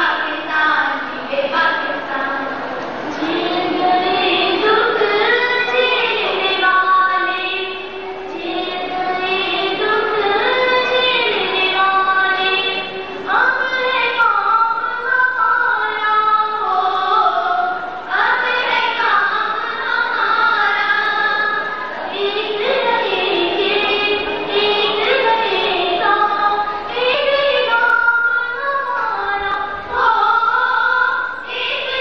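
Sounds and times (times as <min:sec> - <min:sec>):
music: 0:02.4 - 0:32.0
woman singing: 0:03.1 - 0:32.0.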